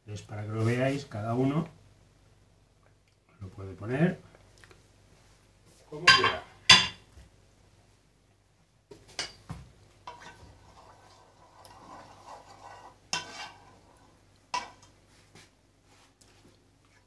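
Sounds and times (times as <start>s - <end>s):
spoon scraping through thick sauce: 10.1s - 14.8s.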